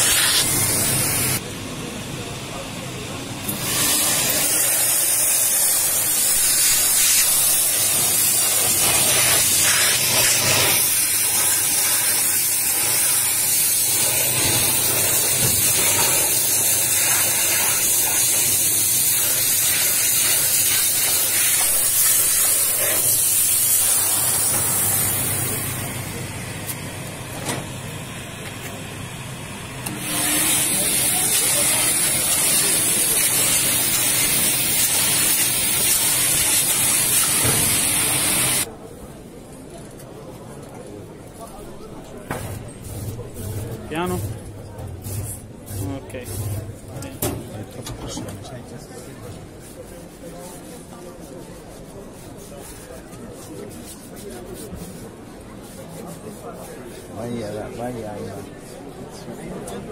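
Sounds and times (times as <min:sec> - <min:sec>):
steam hissing from nozzle: 0:00.0 - 0:01.4, 0:03.5 - 0:26.2, 0:29.8 - 0:38.7.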